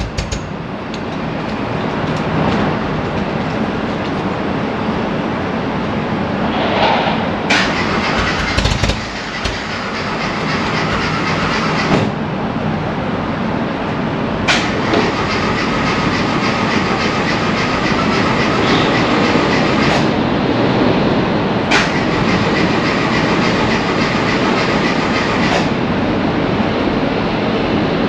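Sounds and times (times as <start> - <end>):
rattly car engine running: 7.5 - 12.2.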